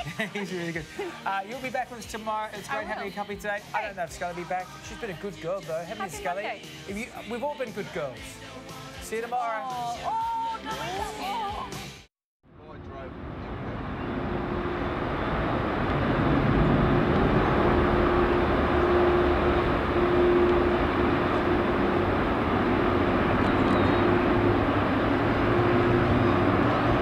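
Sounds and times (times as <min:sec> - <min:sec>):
jet engines: 0:12.5 - 0:27.0.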